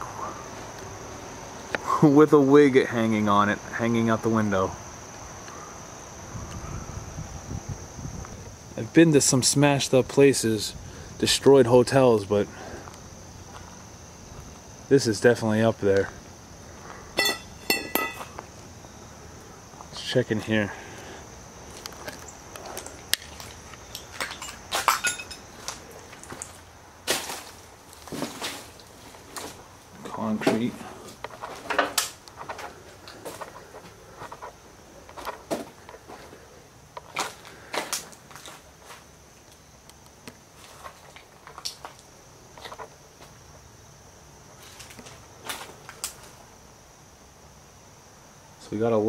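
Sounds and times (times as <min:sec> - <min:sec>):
footsteps crunching on broken glass: 0:17.2 - 0:18.4, 0:21.7 - 0:31.7, 0:37.0 - 0:39.1.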